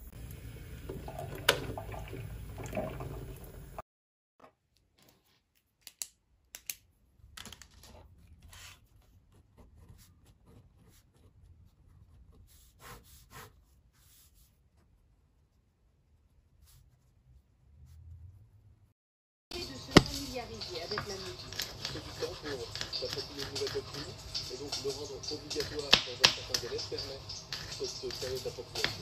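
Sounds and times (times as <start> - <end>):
water boiler rumbling: 0.0 - 3.8.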